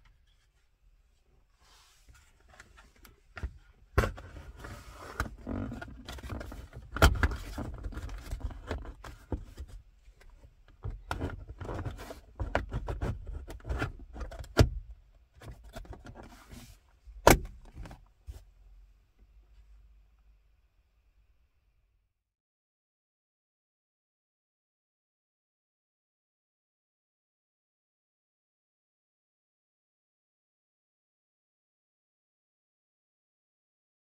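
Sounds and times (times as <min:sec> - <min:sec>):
plastic rattling and scraping: 0:02.1 - 0:09.8, 0:10.8 - 0:14.6.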